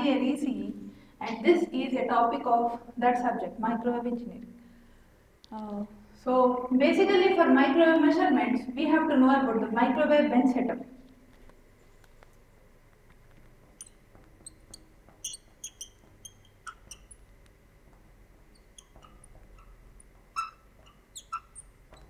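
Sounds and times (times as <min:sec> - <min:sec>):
chalk tapping and squeaking: 0:13.2 - 0:22.0.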